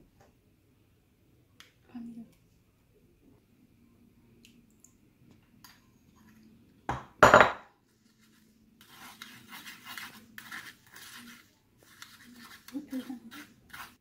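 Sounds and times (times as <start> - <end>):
spoon scraping through mesh: 8.1 - 14.0.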